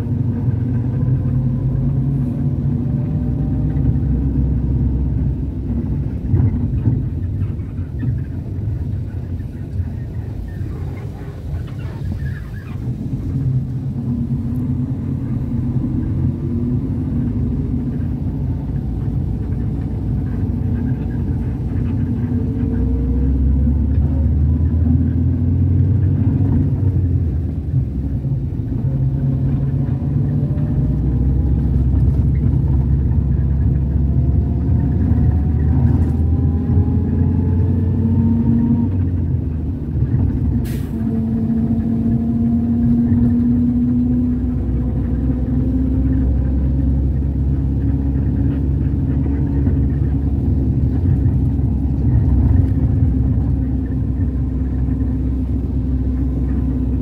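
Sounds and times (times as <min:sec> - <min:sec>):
car engine and road noise: 0:00.0 - 0:57.0
engine whine rising in pitch: 0:00.0 - 0:57.0.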